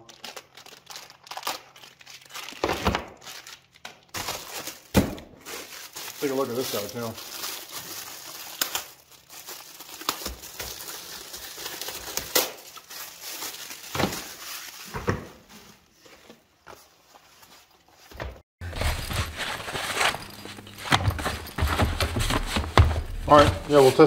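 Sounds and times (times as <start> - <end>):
plastic wrapping crinkling: 0.0 - 16.0, 18.6 - 24.0
low rustling: 18.6 - 24.0.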